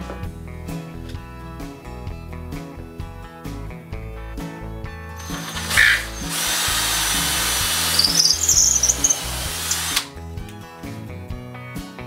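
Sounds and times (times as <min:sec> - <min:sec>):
high squeal: 0:05.2 - 0:10.0
cordless drill boring into wood: 0:05.2 - 0:10.1.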